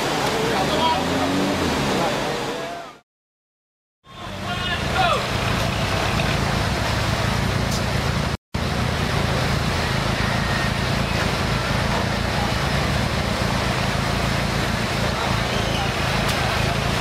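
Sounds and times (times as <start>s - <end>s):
off-road vehicle engine under load: 4.1s - 17.0s.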